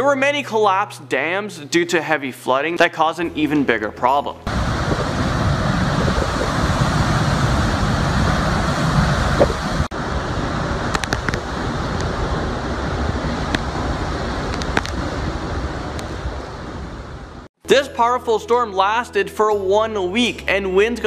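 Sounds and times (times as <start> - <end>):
driving rain: 4.5 - 17.5
strong wind: 4.5 - 17.5
wind rumble on microphone: 4.5 - 17.5.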